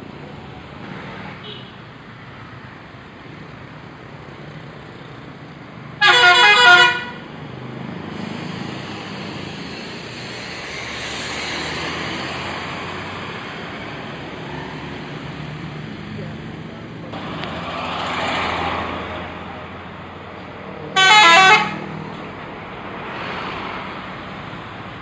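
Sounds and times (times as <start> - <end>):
road noise of passing coach: 0.0 - 25.0
multi-tone musical bus horn: 6.0 - 7.2, 20.9 - 21.9.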